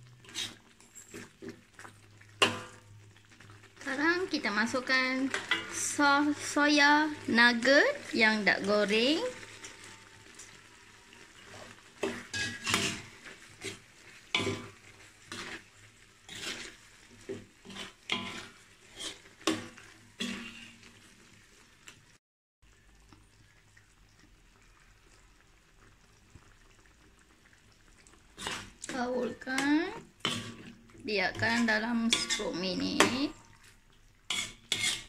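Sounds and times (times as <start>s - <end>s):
sauce sizzling: 0.0s - 35.0s
metal ladle scraping wok: 0.2s - 21.4s, 28.4s - 33.4s, 34.3s - 35.0s.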